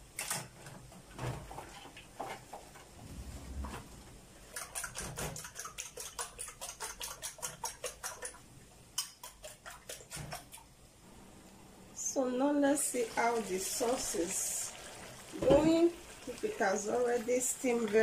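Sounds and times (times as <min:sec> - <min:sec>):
eggs beaten in a bowl: 0:04.4 - 0:10.7.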